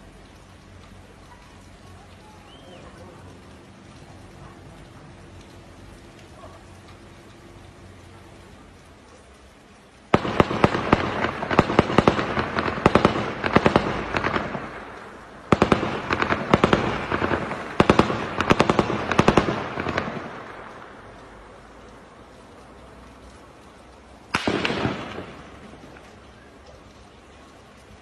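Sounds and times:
rapid sharp bangs with echo: 10.1s - 20.7s, 24.3s - 26.0s.

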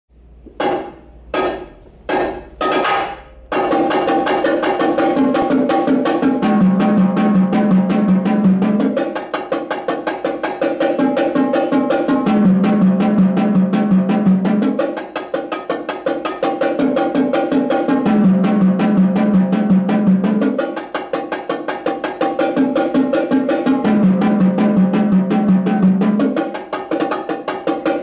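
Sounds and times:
marching tenor drums: 2.8s - 28.0s.

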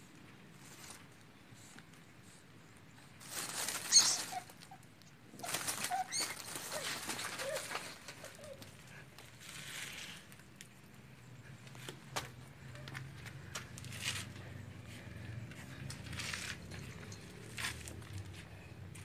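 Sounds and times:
rustling in dry leaves: 0.5s - 1.8s, 3.0s - 10.7s, 16.0s - 19.0s.

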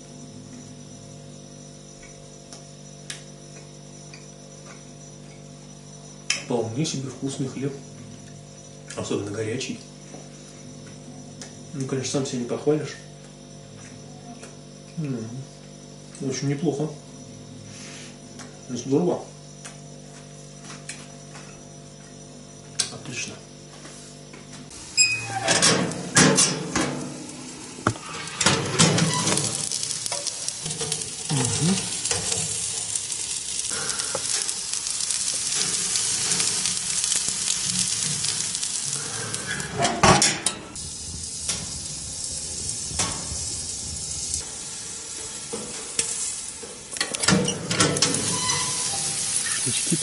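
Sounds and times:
meat sizzling on skewers: 24.7s - 40.0s, 40.7s - 50.0s.

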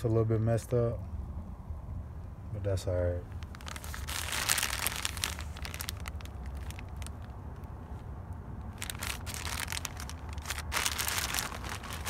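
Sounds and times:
plastic bag crinkling: 3.4s - 7.4s, 8.7s - 12.0s.

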